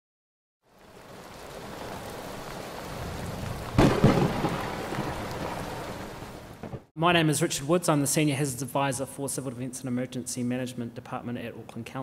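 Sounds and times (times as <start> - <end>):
steady rain: 0.6 - 6.9
thunderclap with rumble: 2.8 - 6.9.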